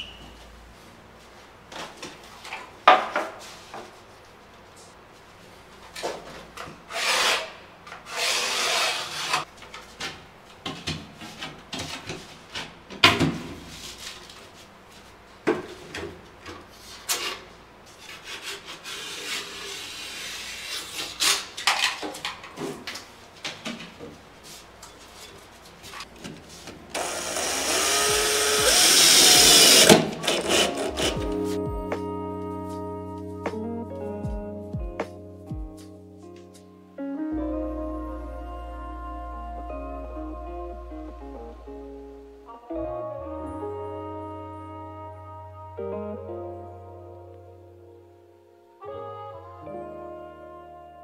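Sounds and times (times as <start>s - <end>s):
blade scraping drywall: 6.9s - 9.5s, 17.0s - 21.5s
cordless drill driving screws: 27.0s - 31.2s.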